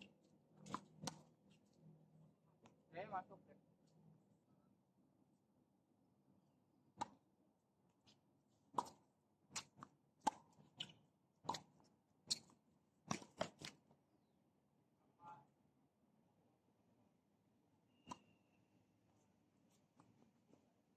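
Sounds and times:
tennis ball bouncing: 0.6s - 1.3s, 7.0s - 7.2s, 8.7s - 12.5s
tennis ball struck by racket: 7.0s - 7.2s, 8.7s - 11.7s.

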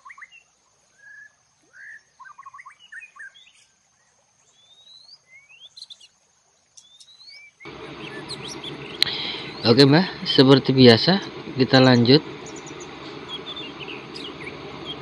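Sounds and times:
birds chirping: 4.5s - 15.0s
rising bird whistles: 6.8s - 9.8s, 12.0s - 15.0s.

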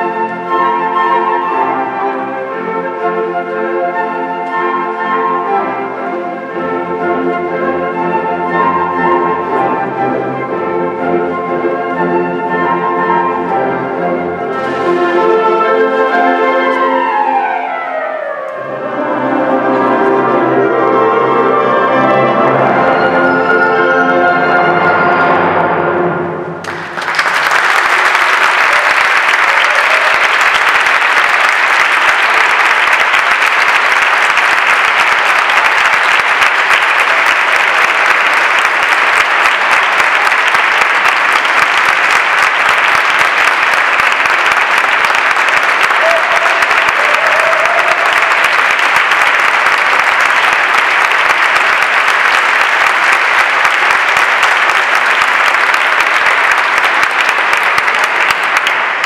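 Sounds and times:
audience applauding: 26.6s - 59.0s.

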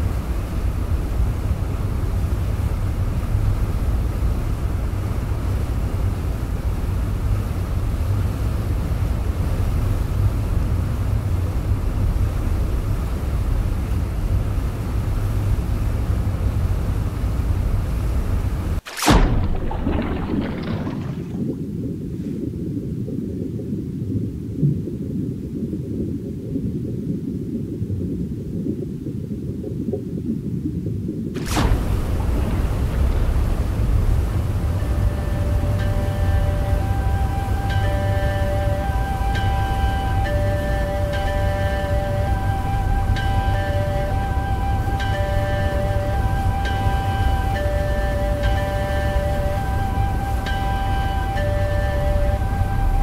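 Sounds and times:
low rumbling noise: 0.0s - 53.0s.

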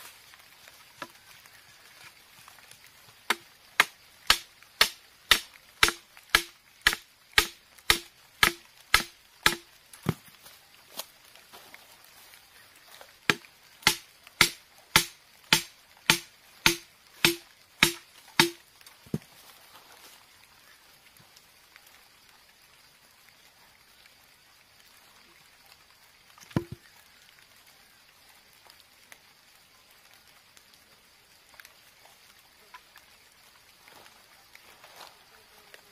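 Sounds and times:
bamboo stake knocks with hollow ring: 3.3s - 10.3s, 13.3s - 19.3s, 26.4s - 26.8s.

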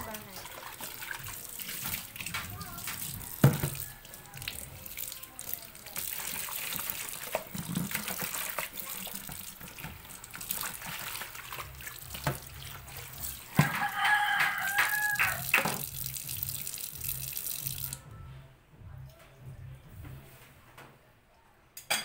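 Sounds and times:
tap water splashing into sink: 0.0s - 18.0s
rooster crowing: 13.6s - 15.6s.

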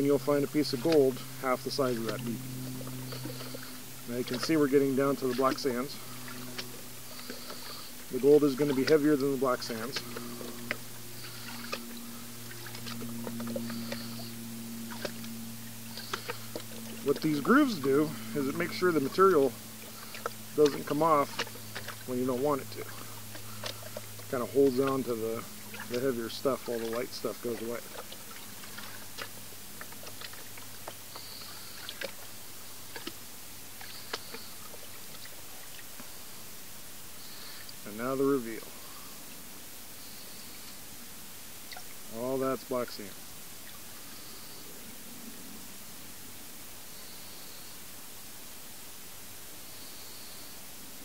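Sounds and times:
water sloshing in a pan: 0.0s - 31.2s
steady low hum: 0.0s - 51.0s
steady hiss: 31.0s - 51.0s.

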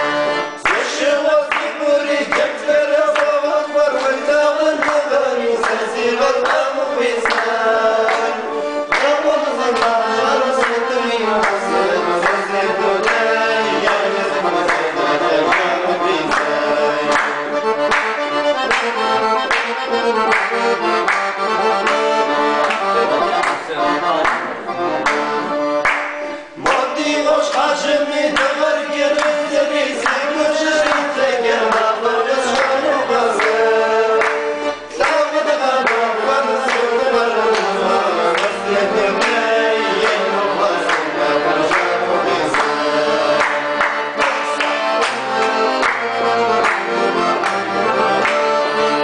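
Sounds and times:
man singing: 0.0s - 17.6s, 26.5s - 45.0s
accordion playing lively tune: 0.0s - 49.0s
hand claps: 0.6s - 49.0s.

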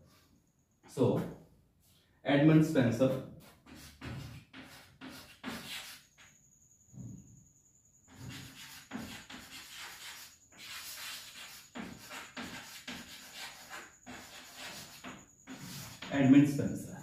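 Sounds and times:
chalk scraping on blackboard: 2.9s - 6.3s, 8.1s - 16.6s.

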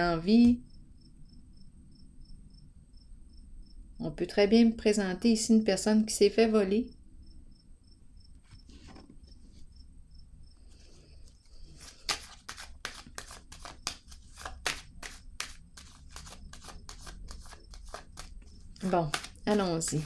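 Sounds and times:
cards shuffling: 10.7s - 20.0s.

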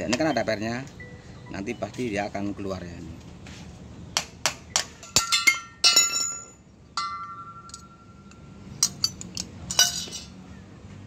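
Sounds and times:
metal parts clicking and clinking: 4.7s - 10.4s.

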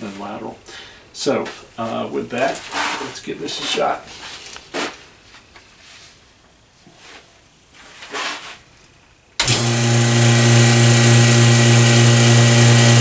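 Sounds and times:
vacuum pump humming: 9.4s - 13.0s.

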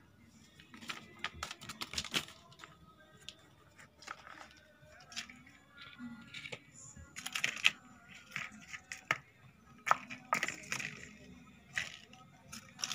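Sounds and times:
paper crinkling and tearing: 0.7s - 2.7s.

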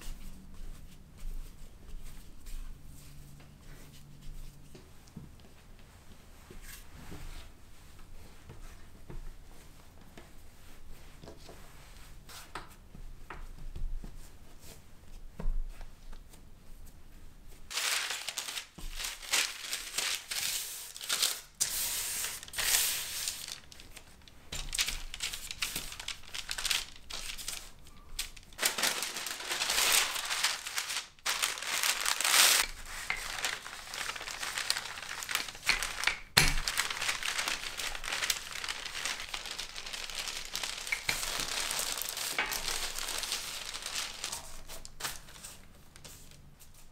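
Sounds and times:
parchment paper crinkling: 17.7s - 46.6s.

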